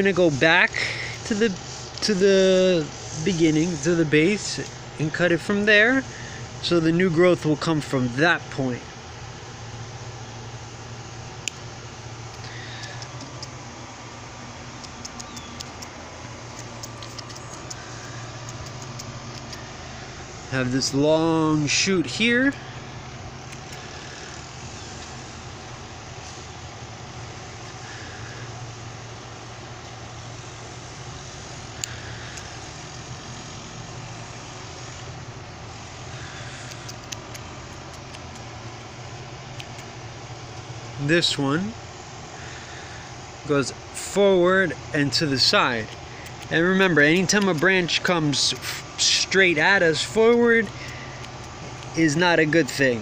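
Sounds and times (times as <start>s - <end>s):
steady low hum: 0.0s - 53.0s
trimmers snipping: 11.3s - 25.5s, 31.4s - 35.1s, 35.7s - 40.8s, 44.7s - 53.0s
light clicks: 14.8s - 19.7s, 36.4s - 38.9s.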